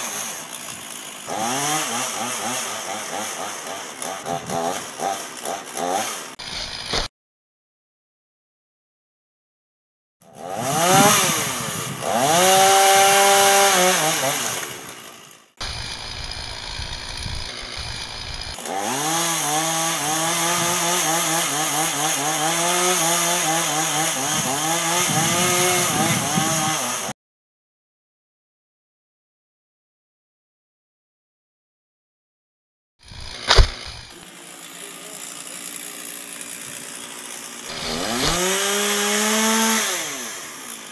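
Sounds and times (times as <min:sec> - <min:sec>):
chainsaw cutting wood: 0:00.0 - 0:07.1, 0:10.2 - 0:27.2, 0:33.0 - 0:40.9.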